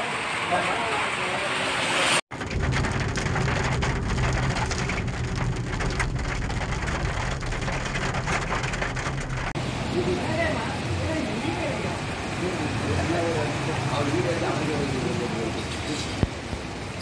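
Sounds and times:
rain falling: 0.0s - 17.0s
low steady rumble: 2.4s - 9.6s.

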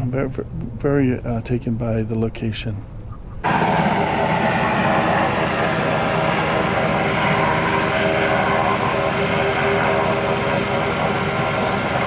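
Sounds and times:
engine drone: 2.8s - 12.0s
wind rushing: 3.4s - 12.0s.

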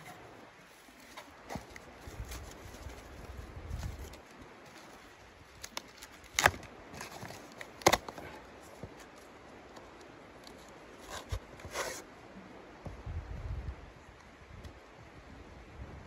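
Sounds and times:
soft rustling: 0.0s - 6.2s
cardboard tearing: 1.0s - 8.4s.

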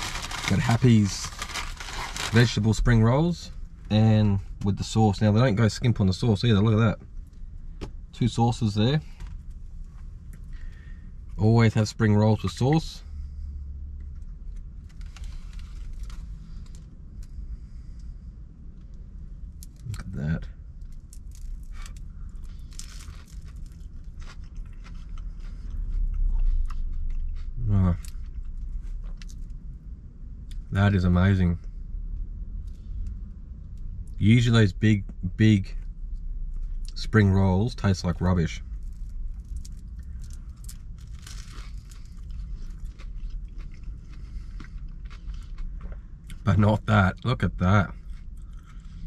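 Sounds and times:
spring roll crunching while chewing: 0.0s - 2.6s, 20.9s - 29.5s, 38.8s - 46.7s
low steady rumble: 0.0s - 49.0s.

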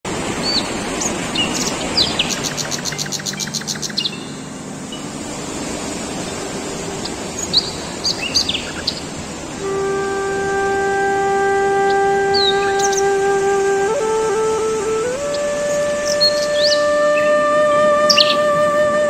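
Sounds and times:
outdoor hiss: 0.1s - 19.0s
small birds chirping: 0.4s - 9.5s, 15.2s - 17.4s, 18.0s - 18.6s
held horn-like musical note: 9.5s - 19.0s.

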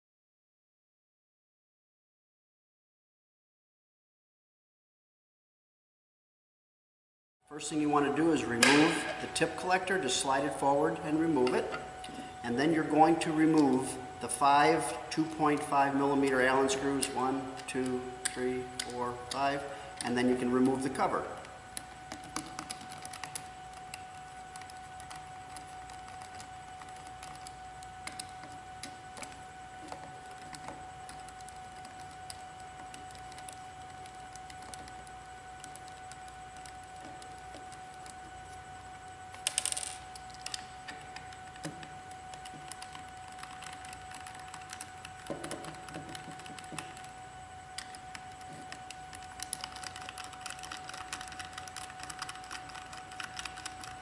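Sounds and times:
faint steady hum: 7.5s - 54.0s.

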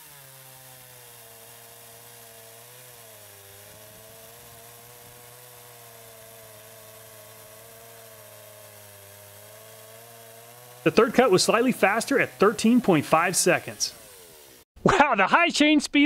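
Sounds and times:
chainsaw cutting wood: 0.0s - 14.7s.

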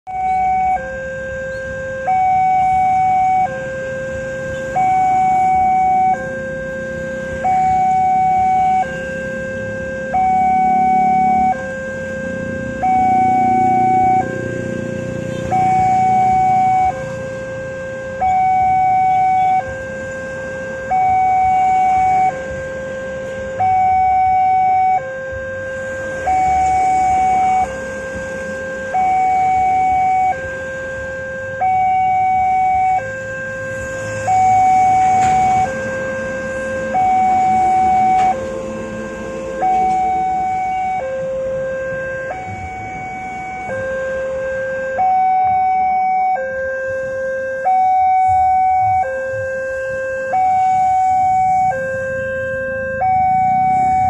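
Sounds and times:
two-tone crossing alarm: 0.1s - 54.0s.

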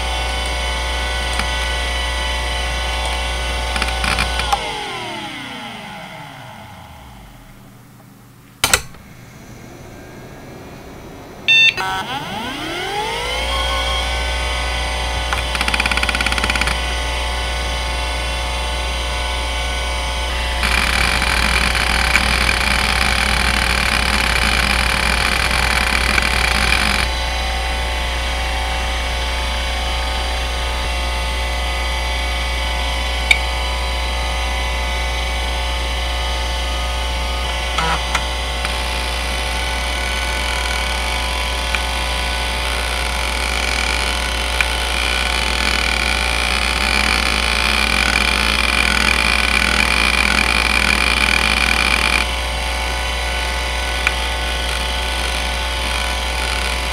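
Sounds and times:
hard drive spinning hum: 0.0s - 56.9s
hard drive heads seeking: 2.7s - 6.8s, 15.2s - 17.0s
hard drive clicks: 2.9s - 6.4s, 15.2s - 17.0s, 20.5s - 27.1s.

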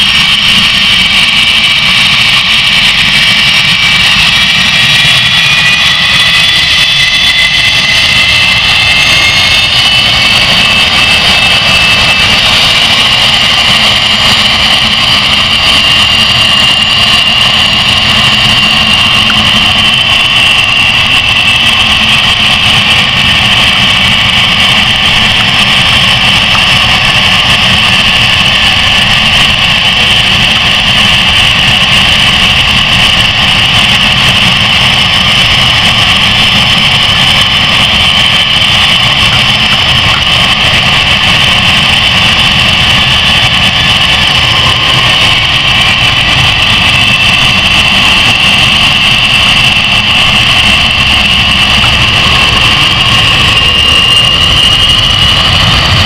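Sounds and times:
jet engines whining: 0.0s - 56.0s.

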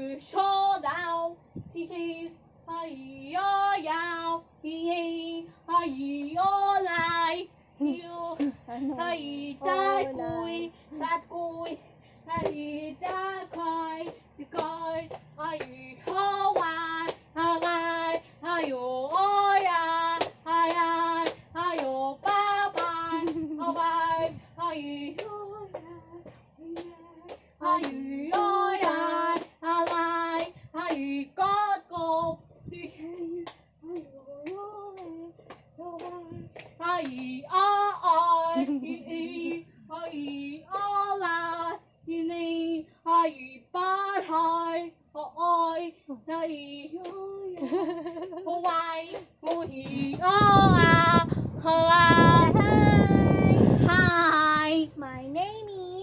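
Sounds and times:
girl singing: 0.0s - 56.0s
hand claps: 12.4s - 23.8s, 25.2s - 31.1s, 33.1s - 37.4s, 47.0s - 51.3s.

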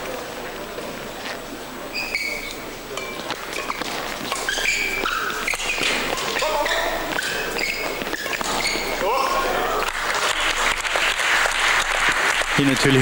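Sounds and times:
shoes squeaking on court: 1.2s - 9.5s
rackets striking shuttlecock: 3.0s - 9.4s.

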